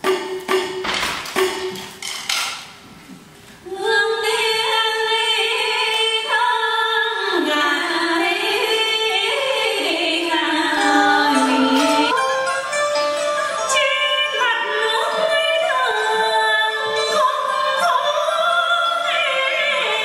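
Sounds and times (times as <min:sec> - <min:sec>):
sharp percussion strikes: 0:00.0 - 0:02.7, 0:10.8 - 0:12.5
woman singing: 0:03.7 - 0:12.2, 0:13.6 - 0:20.0.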